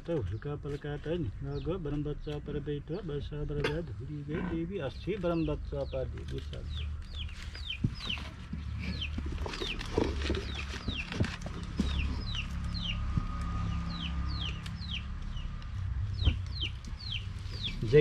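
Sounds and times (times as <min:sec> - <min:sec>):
chicks peeping: 0:04.5 - 0:18.0.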